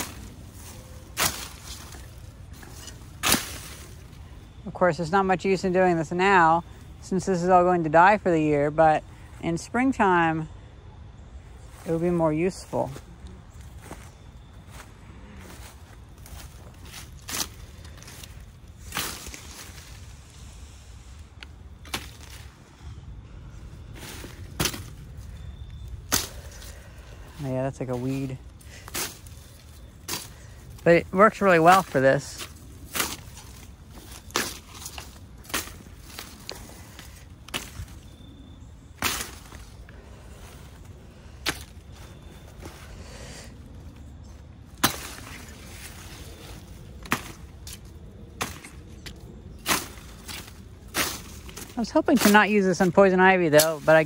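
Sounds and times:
sickle cutting weed stems: 0.0s - 4.7s, 15.4s - 22.8s, 23.8s - 54.0s.

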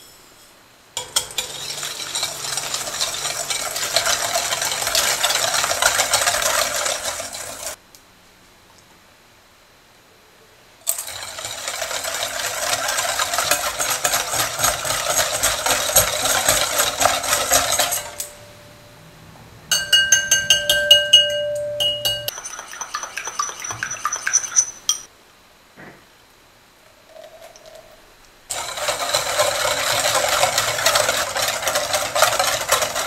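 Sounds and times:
whisk clinking against glass bowl: 1.0s - 7.8s, 10.9s - 18.4s, 19.7s - 25.1s
glass bowl ringing: 19.7s - 22.4s.

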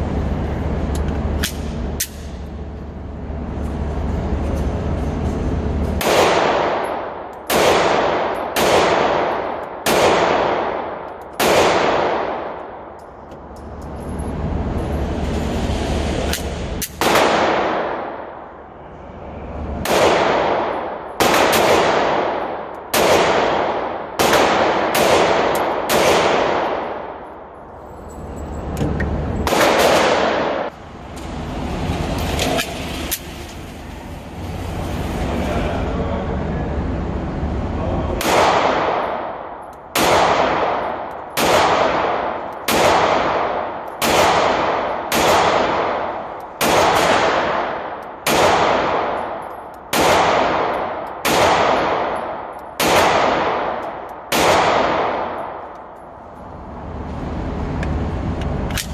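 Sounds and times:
pistol shots echoing indoors: 5.9s - 13.2s, 16.3s - 18.6s, 19.8s - 27.6s, 29.4s - 30.7s, 38.2s - 56.4s.

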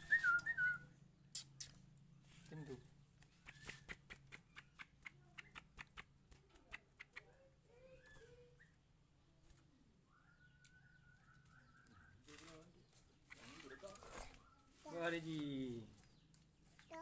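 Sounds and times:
bird chirps: 0.0s - 6.0s, 9.7s - 17.0s
bird hopping in cage clicks: 3.2s - 7.3s
bird trill: 10.0s - 12.6s.

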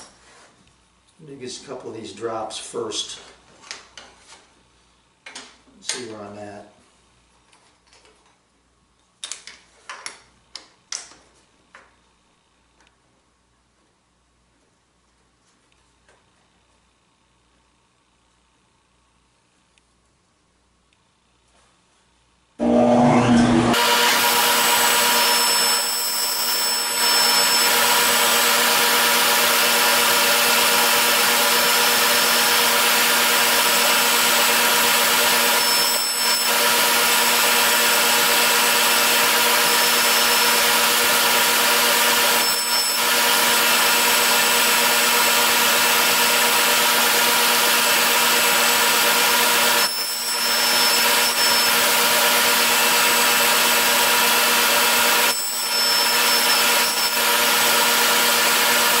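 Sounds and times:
table saw whirring: 22.6s - 59.0s.

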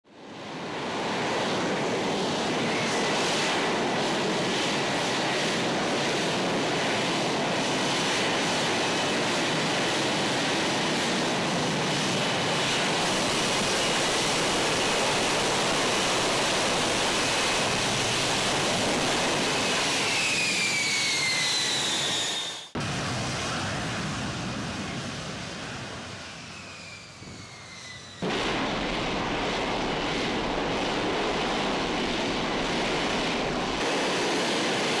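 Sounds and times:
jet roar: 0.1s - 35.0s
falling jet whine: 0.6s - 35.0s.

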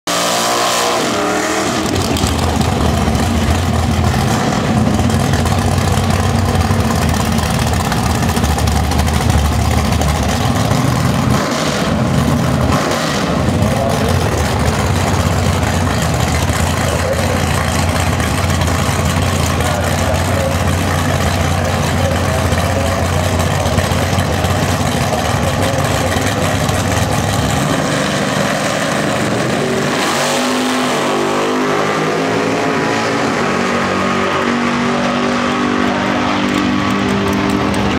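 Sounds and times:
car burnout with tyre spinning: 0.1s - 37.9s
car engines idling with deep rumble: 1.8s - 30.0s, 34.6s - 37.9s.

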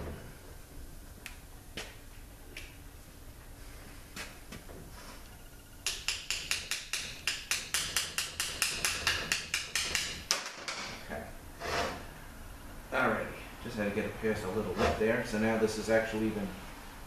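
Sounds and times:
hand tool tapping metal parts: 5.8s - 11.0s.

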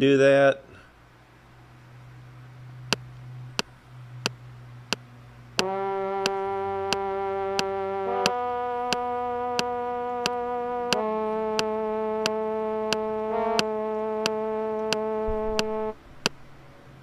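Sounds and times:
synthesizer keyboard held notes: 5.4s - 16.0s
metronome clicking: 5.6s - 16.4s.

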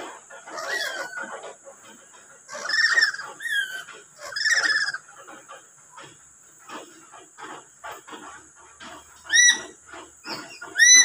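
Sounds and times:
parrot squawks and screeches: 0.5s - 1.4s, 2.5s - 5.0s, 9.3s - 11.0s.

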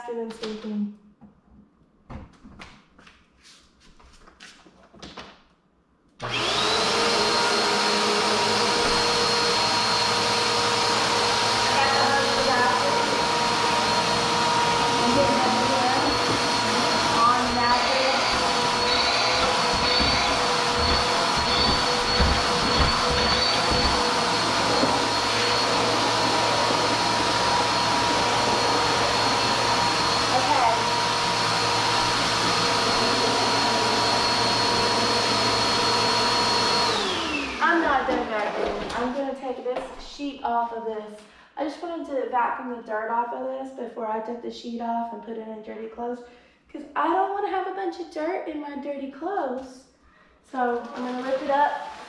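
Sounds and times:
vacuum cleaner running: 6.2s - 39.3s, 50.6s - 52.0s.

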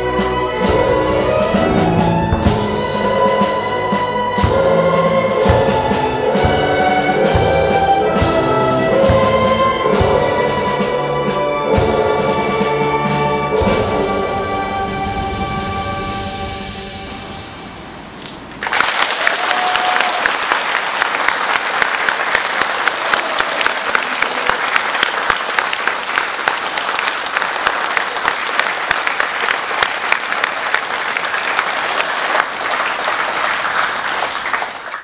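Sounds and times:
music: 0.0s - 17.9s
audience applauding: 18.2s - 35.0s.

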